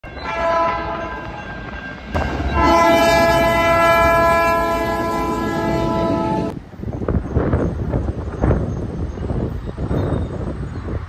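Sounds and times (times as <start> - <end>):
moving train noise: 0.0 - 11.0
train air horn chord: 0.3 - 1.0, 2.5 - 6.6.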